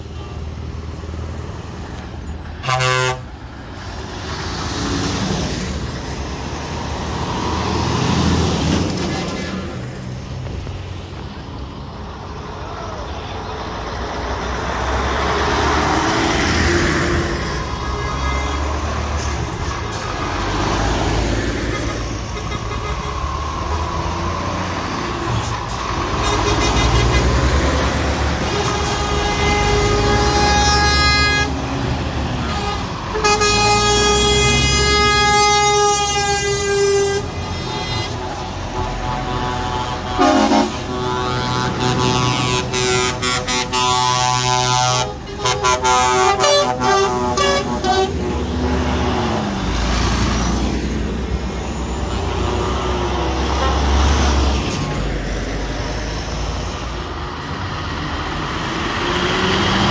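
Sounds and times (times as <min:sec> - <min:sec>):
lorries rumbling past: 0:00.0 - 0:59.9
air horn blasts: 0:02.6 - 0:03.3, 0:26.2 - 0:27.6, 0:28.4 - 0:31.6, 0:32.4 - 0:48.8.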